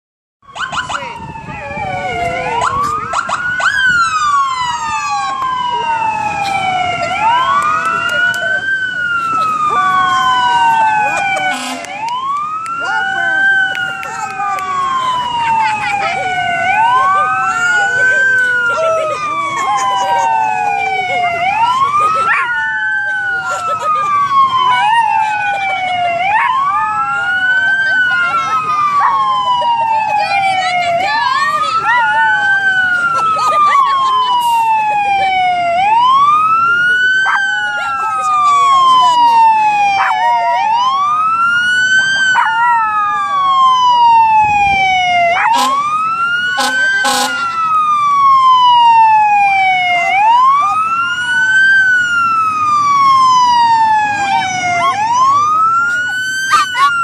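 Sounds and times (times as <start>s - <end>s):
sirens wailing: 0.4s - 57.0s
short siren blips: 9.6s - 15.4s, 43.5s - 55.6s.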